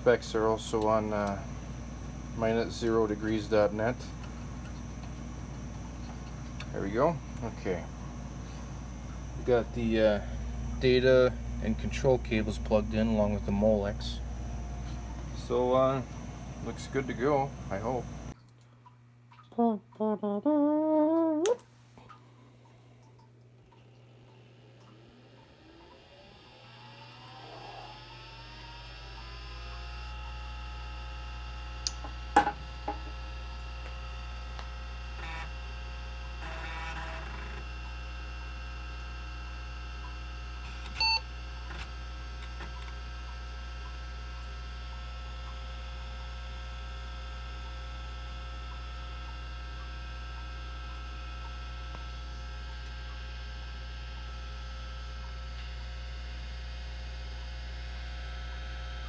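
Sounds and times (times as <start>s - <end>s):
hard drive whine and whirr: 0.0s - 19.2s, 21.6s - 59.0s
low hum: 0.3s - 59.0s
short computer beep: 41.0s - 41.3s.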